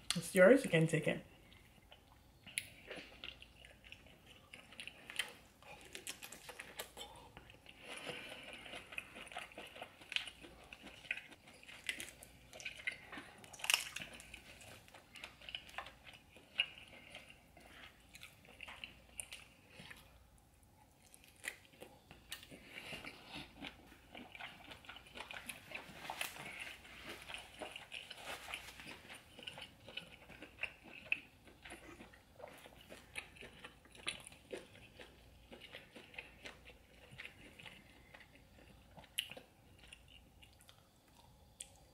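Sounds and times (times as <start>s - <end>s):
close-miked chewing: 1.3s - 41.9s.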